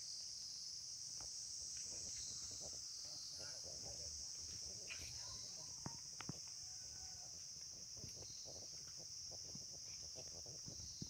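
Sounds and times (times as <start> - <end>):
high-pitched insect drone: 0.0 - 11.0
faint scuffing and rustling: 4.3 - 6.8.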